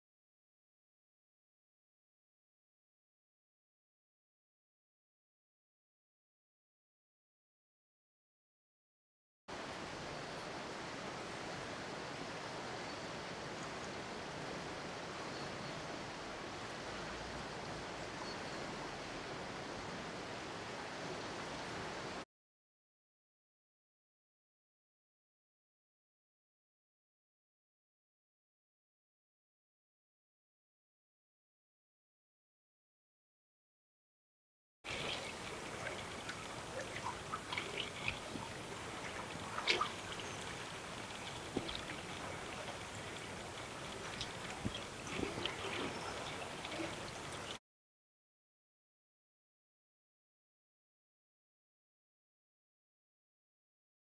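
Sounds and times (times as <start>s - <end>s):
water drips and splashes: 34.9s - 47.6s
water washing: 34.9s - 47.6s.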